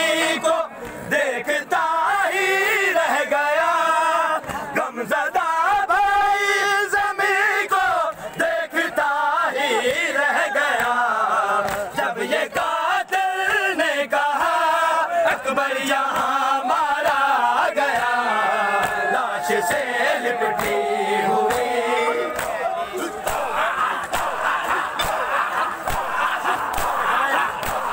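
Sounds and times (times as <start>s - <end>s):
crowd of men chanting: 0.0s - 27.9s
hands slapping chests: 11.6s - 11.9s, 16.1s - 16.4s, 17.9s - 19.8s, 20.4s - 27.9s.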